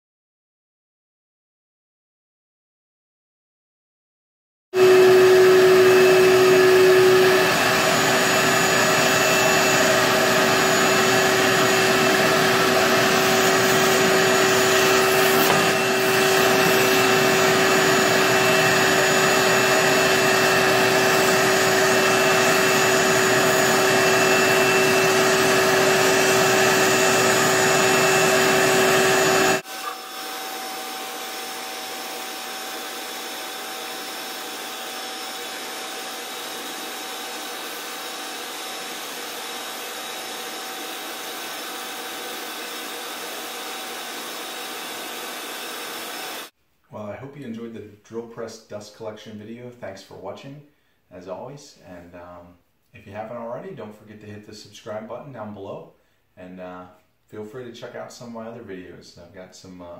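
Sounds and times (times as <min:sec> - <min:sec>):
shop vac whooshing: 0:04.8 - 0:46.5.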